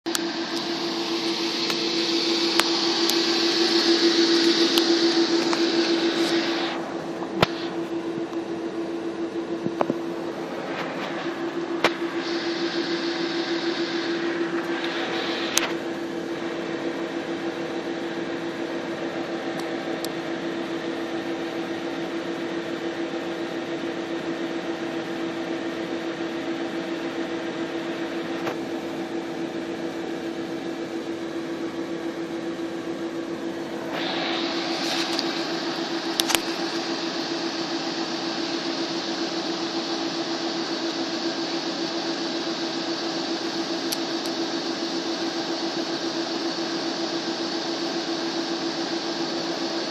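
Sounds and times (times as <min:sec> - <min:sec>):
diesel engine humming: 0:00.1 - 0:22.2
bright hiss: 0:10.6 - 0:17.6, 0:33.8 - 0:44.7.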